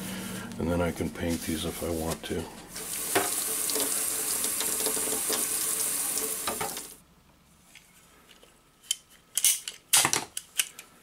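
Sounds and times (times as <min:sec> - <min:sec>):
faucet water splashing in sink: 0:02.8 - 0:07.0.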